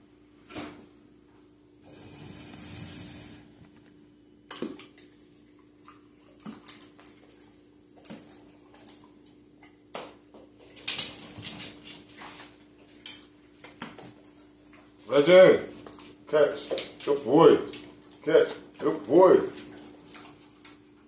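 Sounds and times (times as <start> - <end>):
faint steady hum: 0.0 - 21.0
dog claws clicking on floor: 9.6 - 12.0, 12.8 - 14.8, 15.8 - 18.2.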